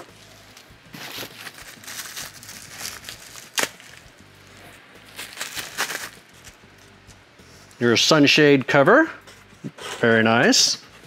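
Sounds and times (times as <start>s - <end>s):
packaging rustling and crinkling: 0.0s - 4.1s, 5.0s - 7.0s.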